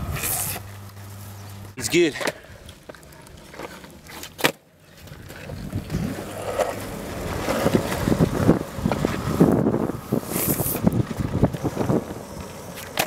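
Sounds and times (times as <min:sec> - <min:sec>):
longboard wheels rolling on asphalt: 0:00.0 - 0:13.0
wind buffeting microphone: 0:05.1 - 0:12.7.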